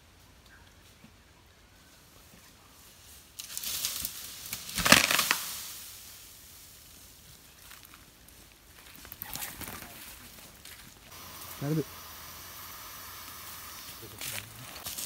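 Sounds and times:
branches and leaves crushing: 3.4 - 5.9, 6.7 - 15.0.

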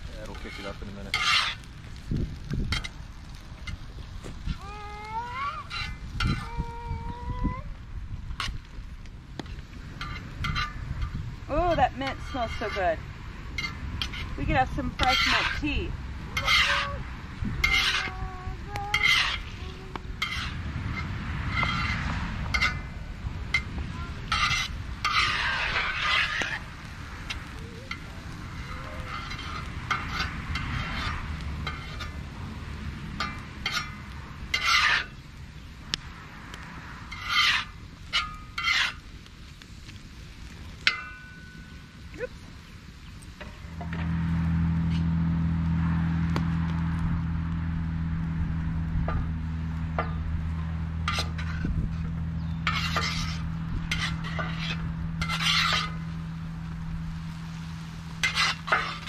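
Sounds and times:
utensil scraping in cooking pot: 0.0 - 3.0, 4.4 - 6.7, 9.5 - 18.2, 18.8 - 22.9, 23.5 - 32.2, 33.1 - 35.2, 37.0 - 39.1, 49.9 - 59.0
steady low rumble: 0.0 - 59.0.

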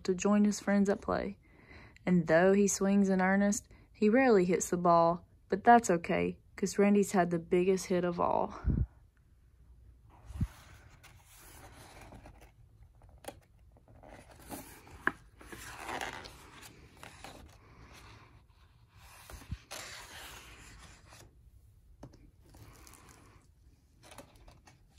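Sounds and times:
book pages rustling: 10.1 - 21.4, 22.0 - 24.9.

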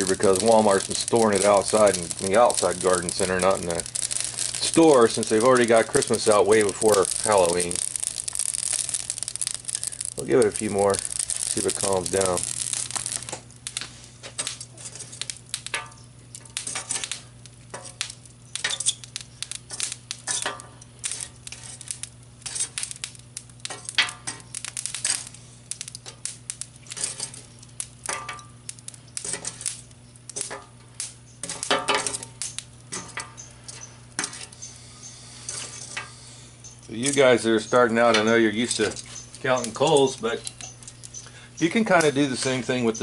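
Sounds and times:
coals knocking together: 0.0 - 43.0
metal tongs clinking on charcoal: 0.0 - 43.0.

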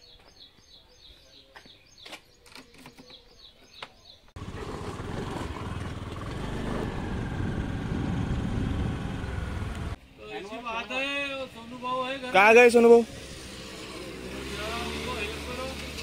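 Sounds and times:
vehicle engine and road noise: 4.3 - 10.2, 11.5 - 16.0.

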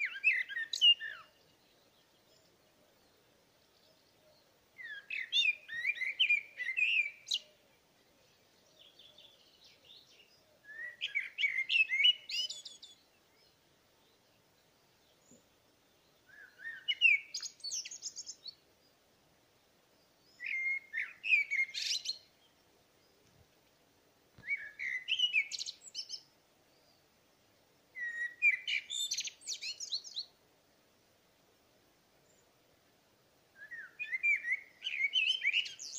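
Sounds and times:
songbird singing: 0.0 - 35.9.

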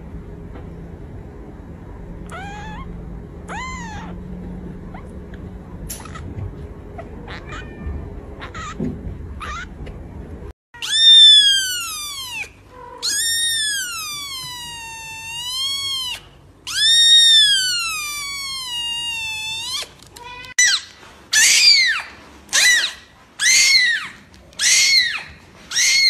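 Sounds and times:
kitten crying in high mews: 2.3 - 2.9, 3.5 - 4.2, 10.8 - 20.8, 21.4 - 26.0
kittens meowing: 2.3 - 4.3, 7.0 - 8.8, 9.4 - 9.8, 10.8 - 20.8, 23.4 - 26.0.

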